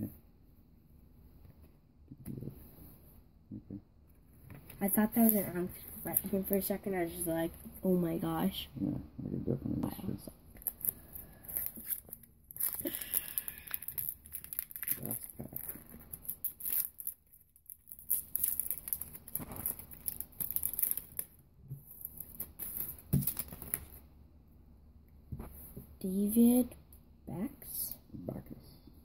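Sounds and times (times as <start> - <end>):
foil wrapper crinkling and tearing: 10.6 - 21.3, 22.0 - 24.0.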